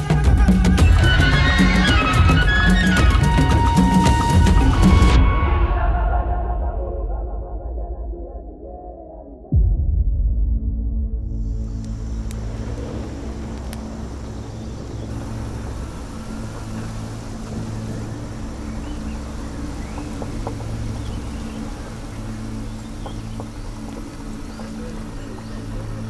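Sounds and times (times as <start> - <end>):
road and wind noise: 11.4 - 26.0
vehicle engine humming: 11.6 - 26.0.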